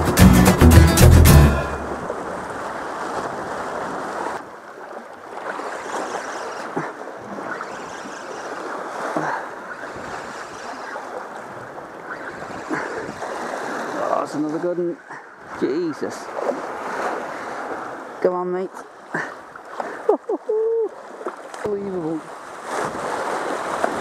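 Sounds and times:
water lapping against rocks: 1.9 - 24.0.

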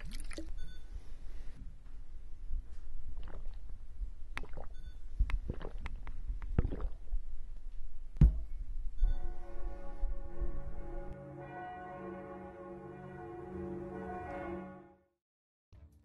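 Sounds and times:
man gulping a drink: 0.0 - 0.6, 3.1 - 3.7, 4.4 - 4.8, 5.4 - 7.1.

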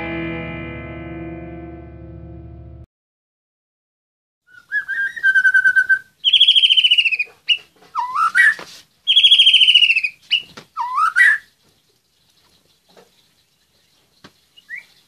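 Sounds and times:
songbird singing trills: 4.5 - 15.0.

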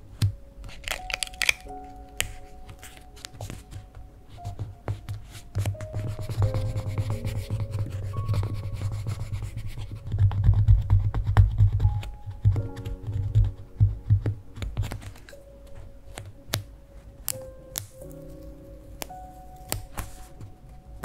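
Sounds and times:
spatula rubbing stickers on paper: 4.5 - 12.1.

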